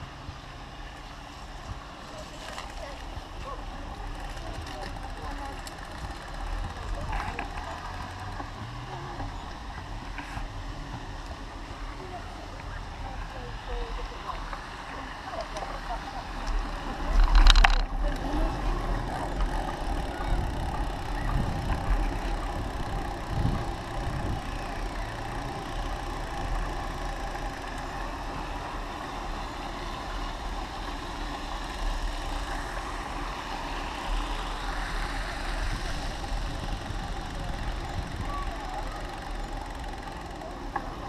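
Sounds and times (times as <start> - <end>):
wind rumbling on microphone: 1.6 - 39.0
low bumps: 1.6 - 41.0
bicycle tyres hissing: 18.2 - 41.0.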